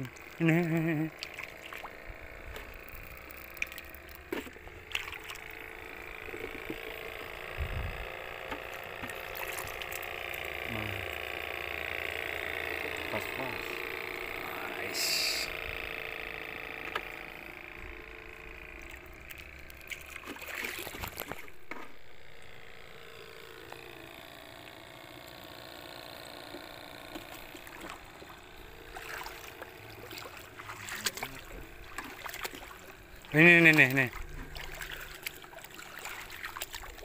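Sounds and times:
shallow water sloshing and splashing: 1.2s - 6.8s, 8.5s - 10.2s, 18.7s - 22.0s, 27.1s - 37.0s.

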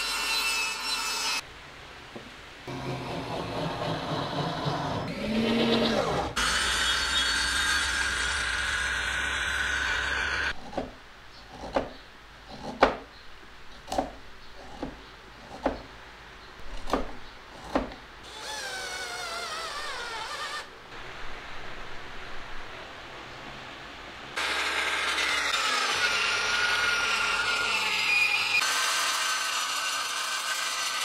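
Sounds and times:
power drill running: 24.4s - 31.0s.

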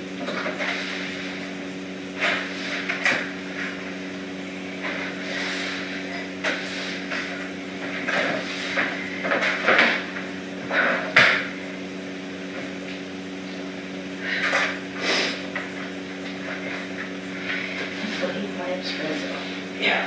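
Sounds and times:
steady low hum: 0.0s - 20.0s
broom sweeping hard floor: 0.2s - 10.2s, 14.7s - 15.6s.

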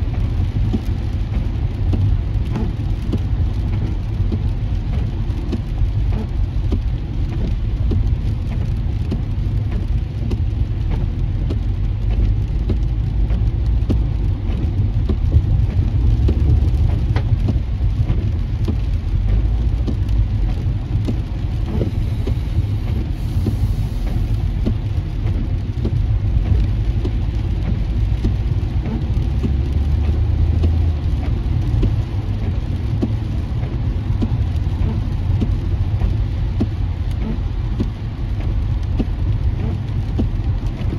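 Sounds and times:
rain hitting windshield: 0.0s - 40.9s
tyres rumbling on wet pavement: 0.0s - 40.9s.

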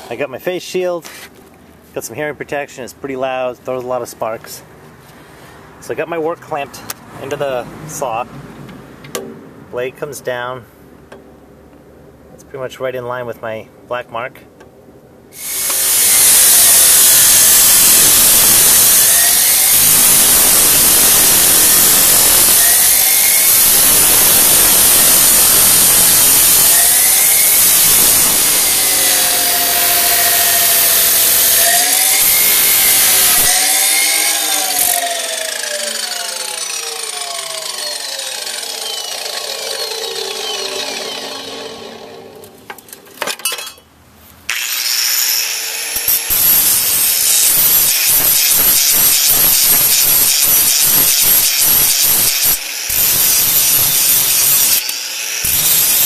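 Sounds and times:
saw motor whine spinning down: 15.4s - 42.7s
chop saw grinding steel: 15.4s - 43.8s, 44.5s - 56.0s.

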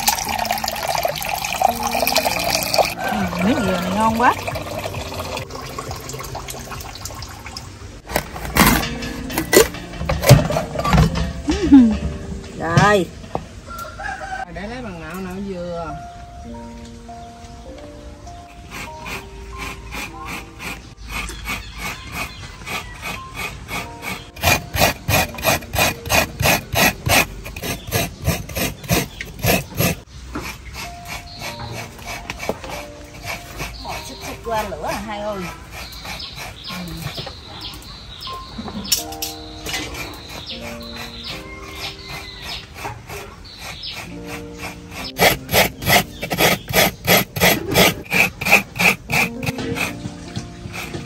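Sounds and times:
coconut rasping on grater: 18.6s - 37.3s, 39.7s - 51.0s.

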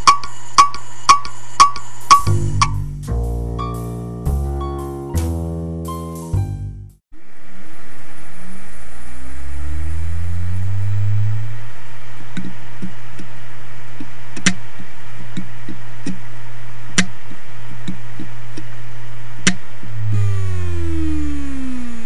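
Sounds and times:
hard drive motor whine: 0.0s - 2.8s, 7.2s - 22.0s.

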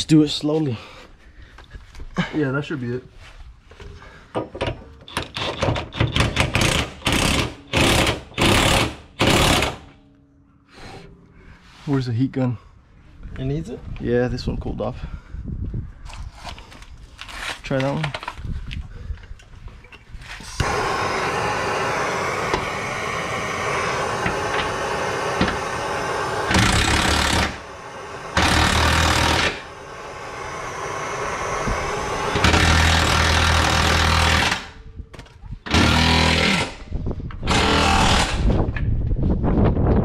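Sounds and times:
hammering power tool bursts: 5.0s - 10.0s, 20.6s - 34.8s, 35.6s - 38.6s
heat gun blowing: 5.1s - 10.0s, 20.3s - 34.8s, 35.7s - 38.6s.

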